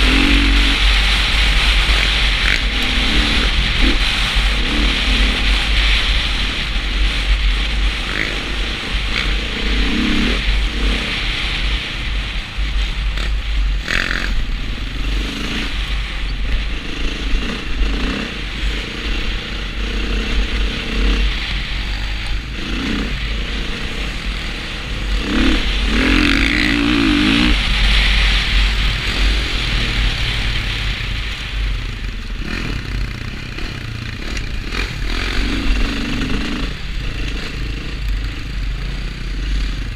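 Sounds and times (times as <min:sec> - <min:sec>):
dirt bike engine revving: 0:00.0 - 0:39.9
wind buffeting microphone: 0:00.0 - 0:39.9.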